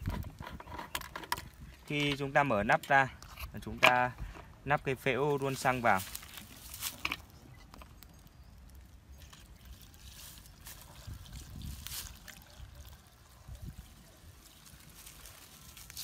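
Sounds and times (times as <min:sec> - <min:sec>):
fuel trickling through funnel: 0:08.3 - 0:16.0.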